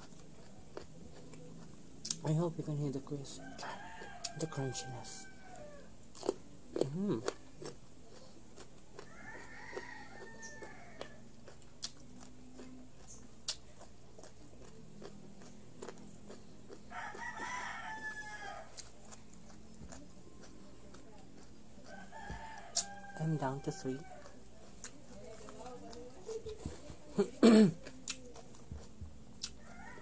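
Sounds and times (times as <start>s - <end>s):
crunchy chewing of raw vegetables: 0.0s - 30.0s
rooster crowing: 3.4s - 5.9s, 9.0s - 11.3s, 16.7s - 18.9s, 21.8s - 24.4s, 29.6s - 30.0s.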